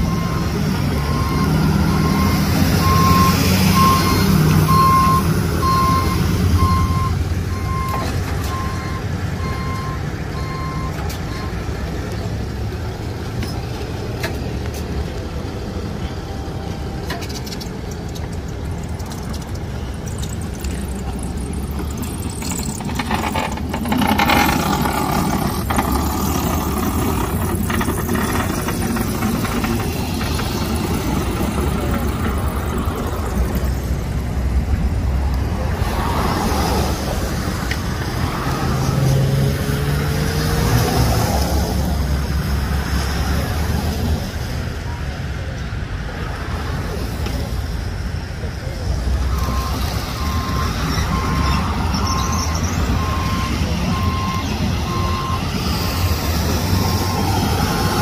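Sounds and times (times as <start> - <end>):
low engine rumble: 0.0 - 38.3
tyres hissing on wet road: 35.7 - 45.4, 46.2 - 58.0.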